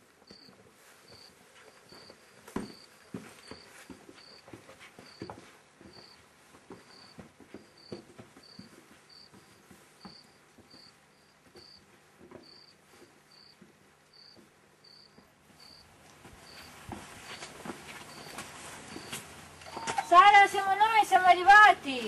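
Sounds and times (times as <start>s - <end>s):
faint footsteps on a path: 0.0s - 22.0s
cricket chirping: 7.8s - 11.8s, 12.4s - 12.7s, 13.3s - 15.8s, 16.4s - 16.7s, 18.1s - 20.0s.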